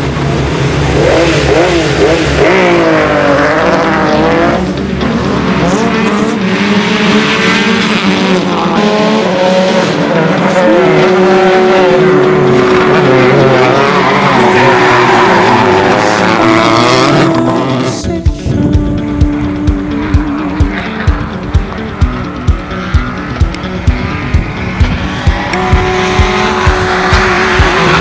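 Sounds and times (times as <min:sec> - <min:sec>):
rally car engine revving: 0:00.0 - 0:28.0.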